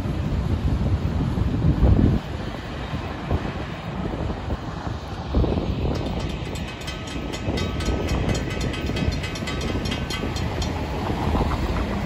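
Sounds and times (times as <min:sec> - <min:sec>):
railroad crossing bell ringing: 0:05.9 - 0:12.0.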